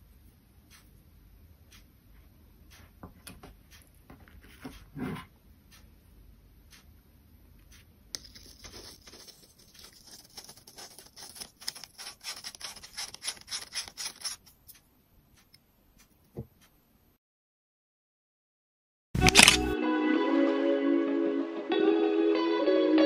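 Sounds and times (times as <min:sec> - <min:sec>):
plastic lens scratchy clicks: 0:19.2 - 0:19.8.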